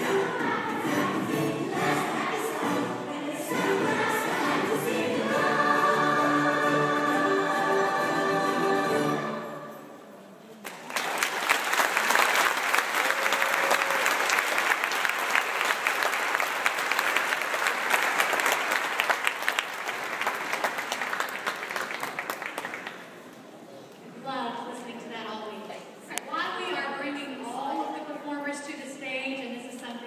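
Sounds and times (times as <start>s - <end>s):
children's choir singing: 0.0s - 10.1s
audience applauding: 10.6s - 23.2s.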